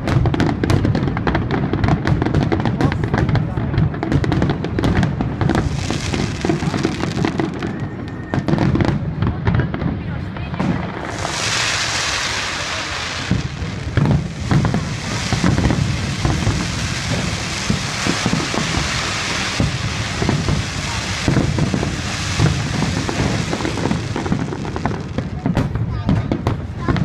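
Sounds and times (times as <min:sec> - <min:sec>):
fireworks hissing and crackling: 0:00.0 - 0:27.0
fireworks shells bursting: 0:10.9 - 0:25.6.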